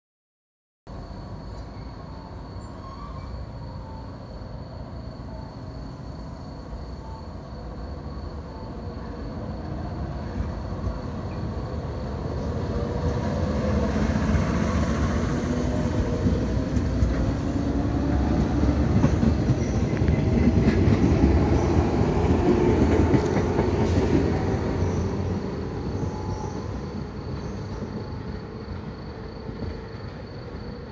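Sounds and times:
train wheels clattering on rails: 12.5 - 30.9.

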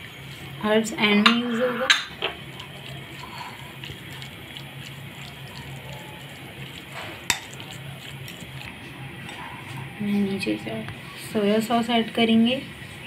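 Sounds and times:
fork stirring wet chicken: 0.1 - 13.0
fork clinking glass bowl: 7.0 - 8.4.

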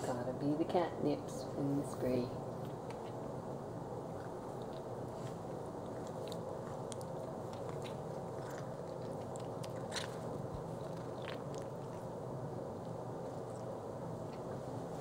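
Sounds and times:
steady low hiss: 0.0 - 15.0
animals licking and chewing: 4.1 - 15.0.

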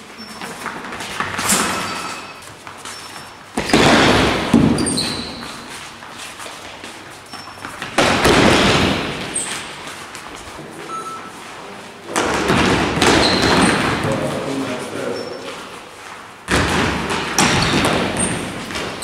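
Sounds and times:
shoe squeaks: 0.0 - 3.8, 4.6 - 7.9, 9.2 - 11.7, 13.1 - 15.8, 17.4 - 19.0.

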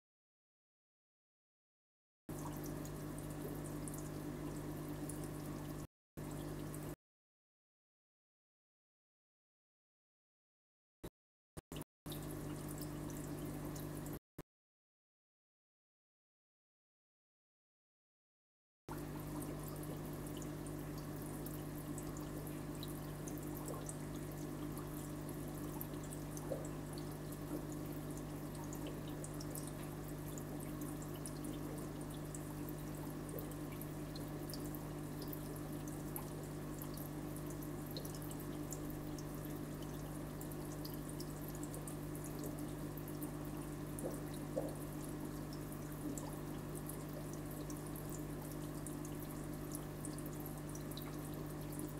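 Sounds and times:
aquarium water trickling: 2.3 - 7.0, 12.1 - 14.2, 18.9 - 51.9.

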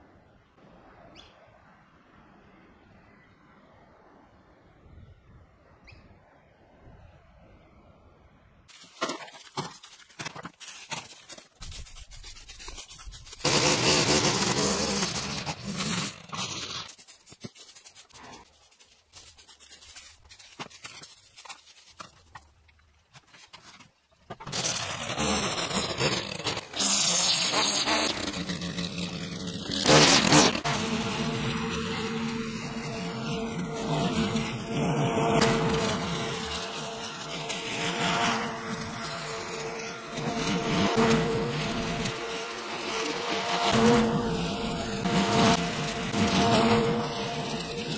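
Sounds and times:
rake scraping through dry leaves: 8.7 - 47.9
leaf blower running: 13.4 - 16.9, 24.5 - 47.9.

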